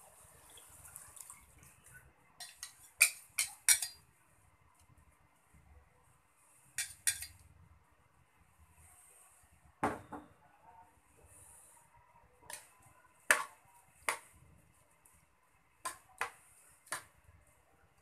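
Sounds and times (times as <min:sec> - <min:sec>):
metal bowl and spoon clinking: 0:02.4 - 0:04.0, 0:06.8 - 0:07.4.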